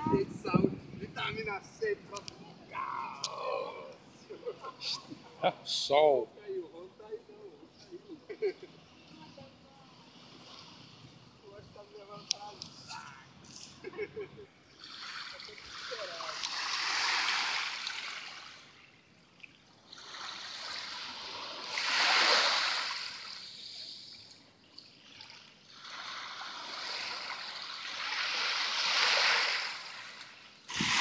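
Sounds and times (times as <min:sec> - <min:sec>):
small waves lapping on sand: 0:08.4 - 0:31.0.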